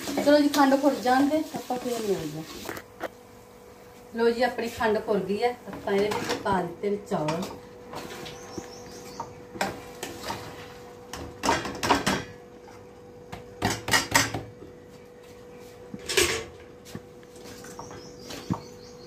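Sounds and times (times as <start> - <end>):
colander and spoon knocking on pan: 13.3 - 14.6.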